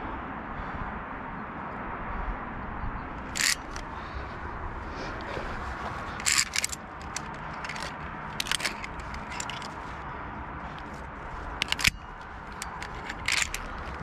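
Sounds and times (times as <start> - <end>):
low background noise: 0.0 - 14.0
carabiners clicking on steel cable: 3.3 - 4.1, 5.2 - 14.0.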